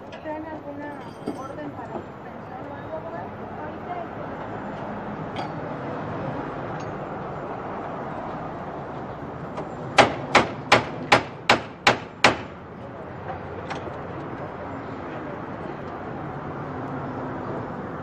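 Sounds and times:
street noise: 0.0 - 18.0
hammer striking chisel: 10.0 - 12.5.

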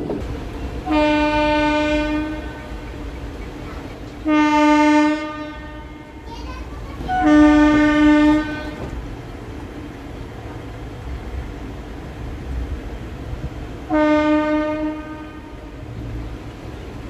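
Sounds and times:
moving train rumble: 0.0 - 17.0
train horn blasts: 0.8 - 3.2, 4.2 - 6.3, 7.0 - 9.0, 13.9 - 15.9.

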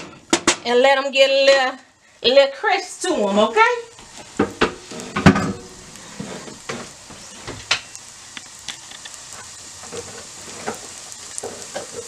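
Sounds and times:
vegetables sizzling in oil: 0.0 - 12.0
pops and crackles: 4.0 - 12.0.

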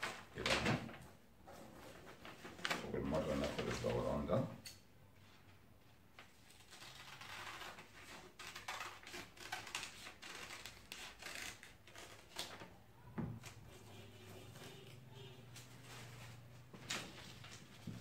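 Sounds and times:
paper rustling: 0.0 - 4.3, 5.2 - 12.7, 15.4 - 18.0.

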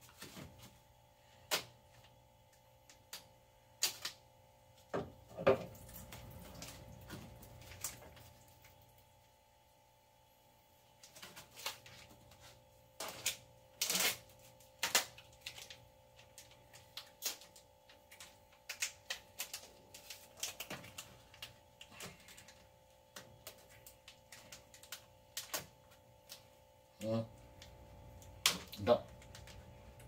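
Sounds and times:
plastic pack clicking and crinkling: 13.0 - 26.5, 27.5 - 30.0.

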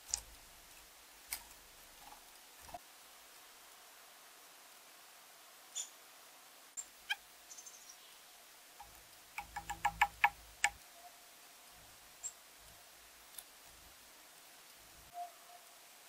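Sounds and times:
bird bill tapping on wood: 8.8 - 10.8.

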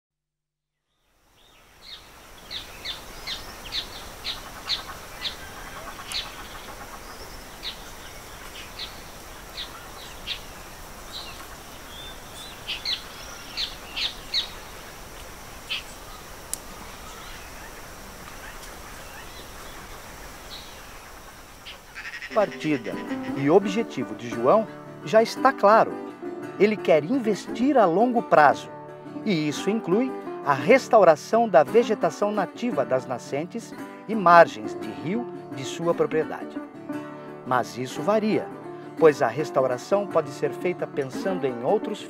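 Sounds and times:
birds chirping: 0.9 - 25.9
steady background hiss: 1.1 - 24.8.

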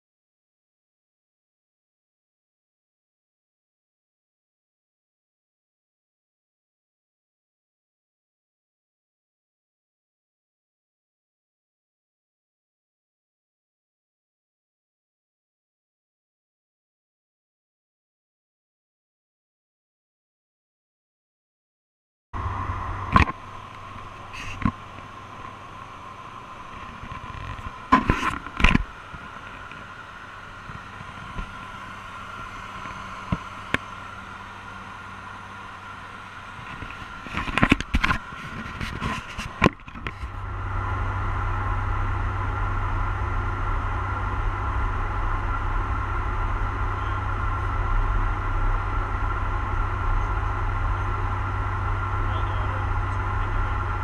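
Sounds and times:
cockpit airflow and equipment hum: 22.4 - 54.0
faint steady tones: 22.4 - 54.0.

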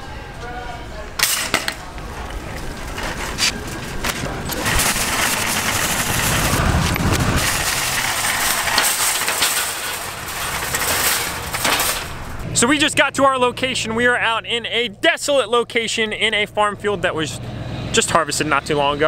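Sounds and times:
shopping cart rattling: 1.2 - 12.6.

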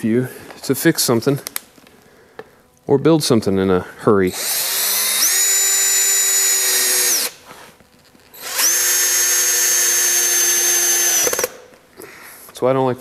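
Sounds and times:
cordless drill driving screws: 4.3 - 7.4, 8.3 - 11.6.

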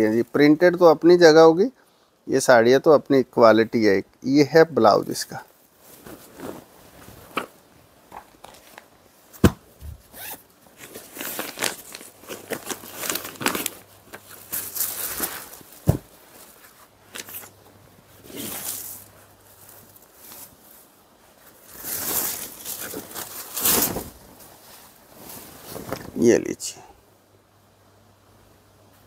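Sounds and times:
fabric rustling and swishing: 5.5 - 26.2.

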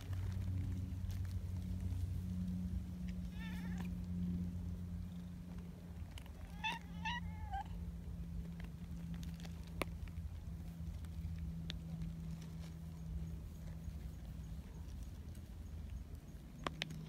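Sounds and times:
steady low hum: 0.0 - 17.0
cat meowing: 3.2 - 3.9, 6.3 - 7.8.

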